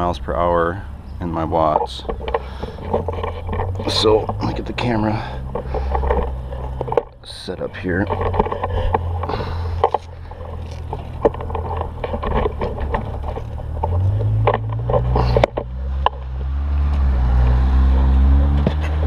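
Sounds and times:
low vehicle rumble: 0.0 - 19.0
camera mount clicks and knocks: 5.5 - 7.1.

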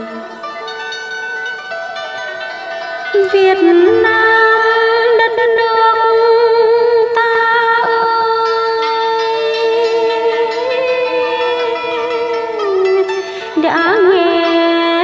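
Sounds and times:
instrumental accompaniment: 0.0 - 15.0
woman chanting long note: 3.1 - 15.0.

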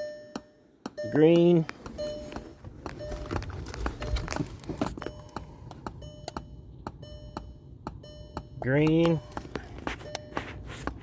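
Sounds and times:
speaker clicks ticking: 0.3 - 3.0, 4.2 - 10.2.

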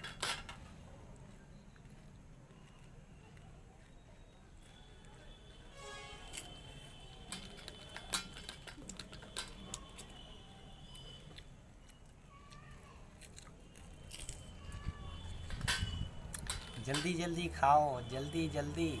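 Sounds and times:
crisp shells cracking: 11.8 - 17.0
steel plates clinking: 15.4 - 17.5.

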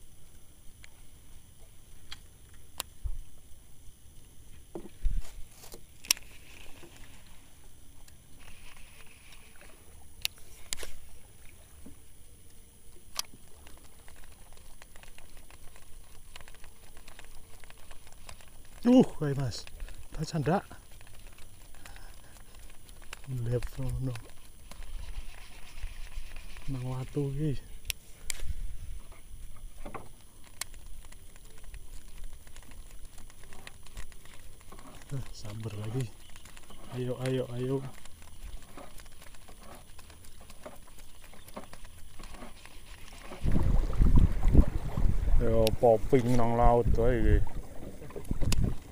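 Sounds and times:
wind and water rumble: 0.0 - 48.9
fishing reel ticks and rustles: 4.6 - 48.9
fishing reel clicks: 6.0 - 7.1.

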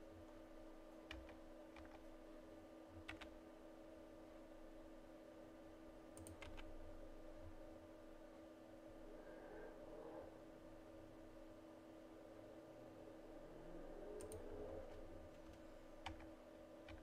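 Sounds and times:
low steady hum: 0.0 - 17.0
keyboard and mouse clicks: 1.1 - 2.0, 3.0 - 3.4, 6.2 - 6.8, 14.2 - 14.5, 15.4 - 17.0.

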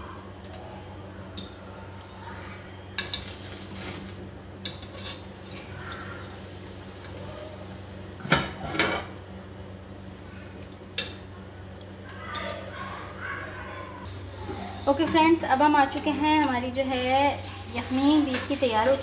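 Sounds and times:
low steady hum: 0.0 - 19.0
wire skimmer scraping metal pot: 14.3 - 19.0.

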